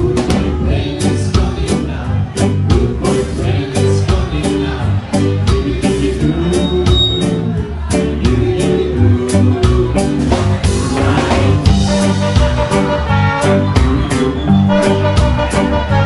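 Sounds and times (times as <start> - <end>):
ska band playing: 0.0 - 16.0
horn section held notes: 11.8 - 16.0.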